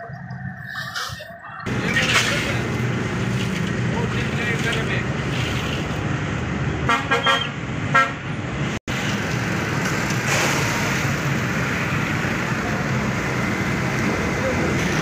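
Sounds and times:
vehicle horn honking: 0:06.9 - 0:08.2.

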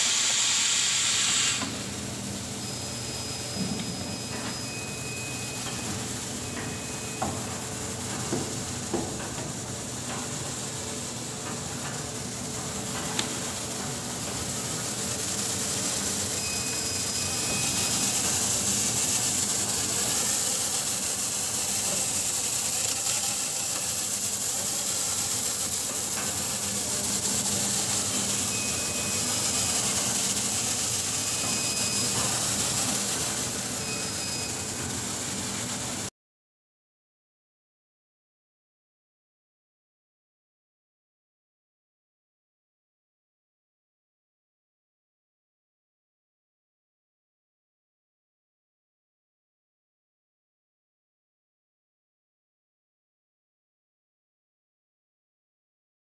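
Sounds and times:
high hiss: 0:00.0 - 0:07.6, 0:13.3 - 0:36.0
machinery humming: 0:01.6 - 0:36.1.

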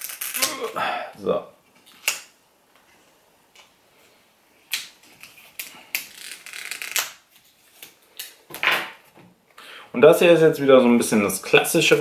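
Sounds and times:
shrink-wrap tearing and crinkling: 0:00.0 - 0:00.8, 0:05.1 - 0:08.3.

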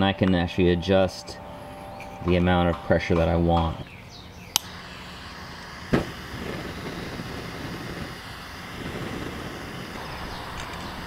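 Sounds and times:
propane gas hissing from burner: 0:03.2 - 0:11.0
sharp click: 0:04.5 - 0:04.8.

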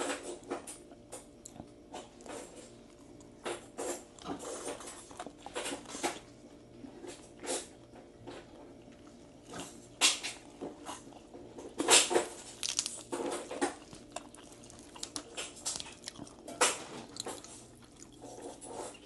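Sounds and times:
chewing crispy fried chicken: 0:00.0 - 0:19.0
sharp crunches: 0:09.6 - 0:18.0.

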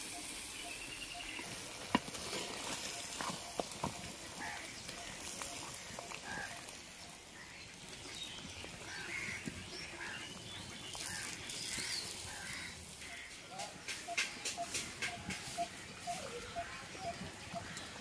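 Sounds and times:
wooden spatula stirring: 0:01.4 - 0:06.7
faint animal calls: 0:02.7 - 0:07.6, 0:11.0 - 0:18.0.

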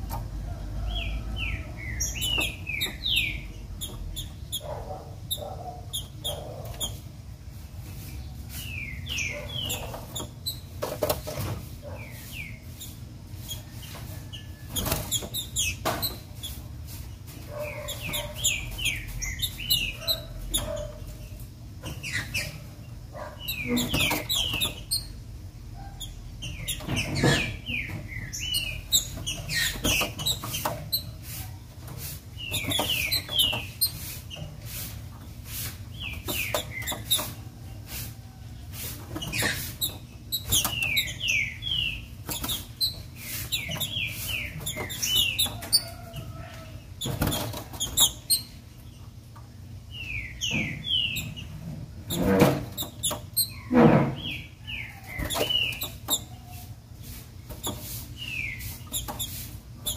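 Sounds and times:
bird chirping downward-sliding: 0:49.9 - 0:59.9.

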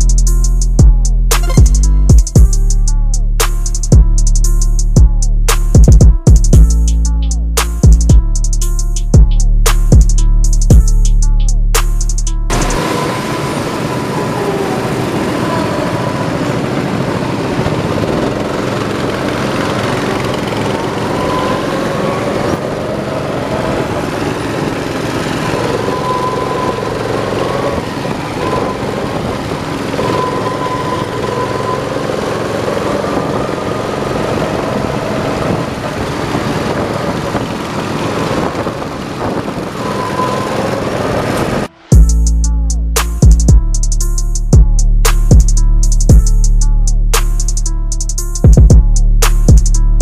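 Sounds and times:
go-kart engine running: 0:12.6 - 0:41.7.

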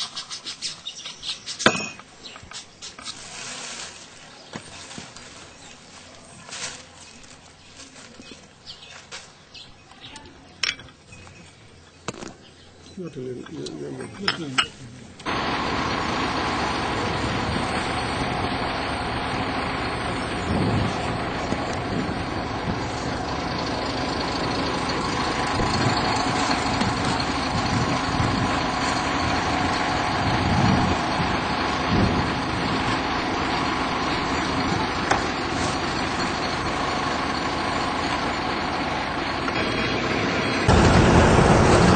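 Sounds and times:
road noise: 0:10.3 - 0:41.9
vehicle engine running: 0:15.2 - 0:41.9.

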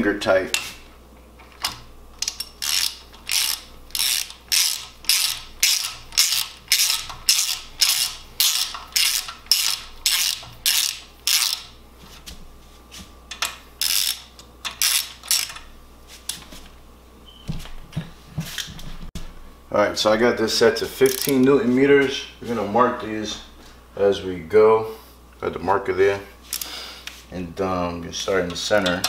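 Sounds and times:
socket ratchet clicking: 0:01.6 - 0:11.7, 0:13.3 - 0:15.6.

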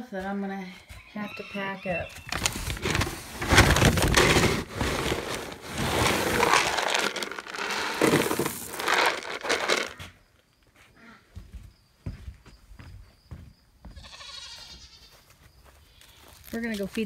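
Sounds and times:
plastic feed bag rustling: 0:02.2 - 0:10.0
feed pellets rattling into bucket: 0:02.3 - 0:10.0.

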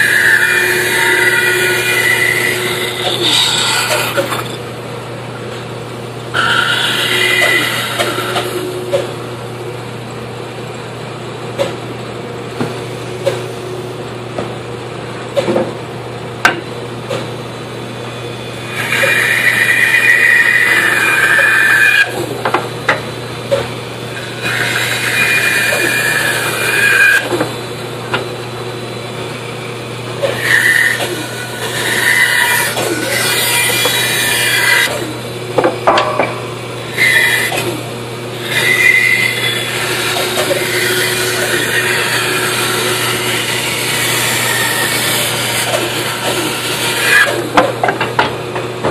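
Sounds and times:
band saw cutting wood: 0:00.0 - 0:04.7, 0:06.3 - 0:09.3, 0:18.1 - 0:29.4, 0:30.0 - 0:48.2
band saw humming: 0:00.0 - 0:10.9, 0:16.4 - 0:48.9.

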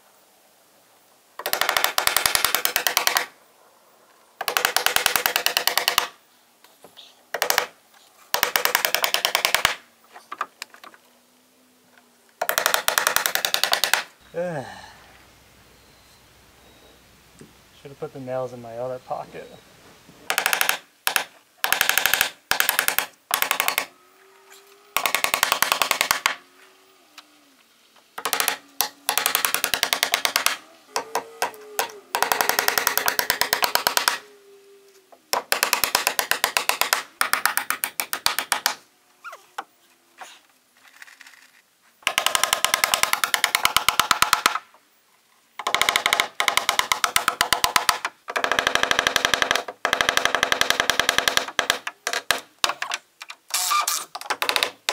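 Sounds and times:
hammering nails into wood: 0:01.4 - 0:03.3, 0:04.4 - 0:06.2, 0:07.3 - 0:10.5, 0:12.4 - 0:14.1, 0:20.3 - 0:23.9, 0:25.0 - 0:26.4, 0:28.2 - 0:34.2, 0:35.3 - 0:38.8, 0:42.0 - 0:44.7, 0:45.6 - 0:54.9.

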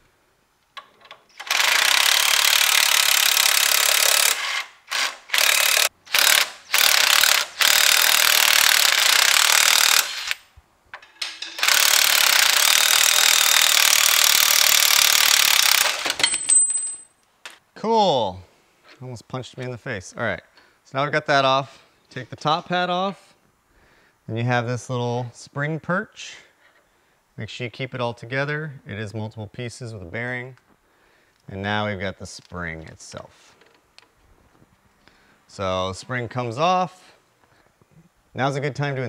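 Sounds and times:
impact wrench hammering: 0:11.0 - 0:17.0.

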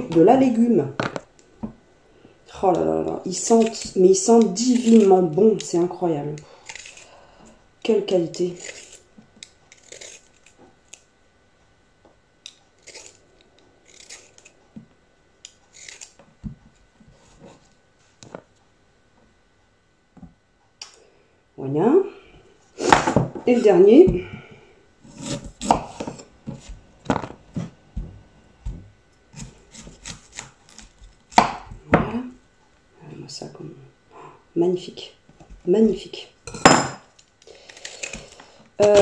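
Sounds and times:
vegetable peeler scraping: 0:02.7 - 0:07.2, 0:08.2 - 0:11.0, 0:12.4 - 0:14.6, 0:15.4 - 0:16.2, 0:25.0 - 0:26.8, 0:29.3 - 0:31.2, 0:37.6 - 0:39.0.

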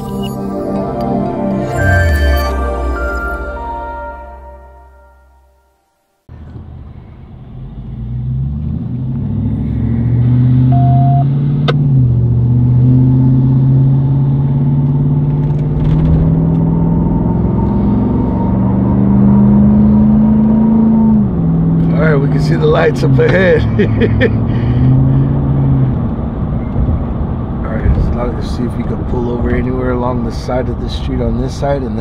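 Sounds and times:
ambient music tones: 0:00.0 - 0:06.3
car driving rumble from cabin: 0:06.3 - 0:32.0.

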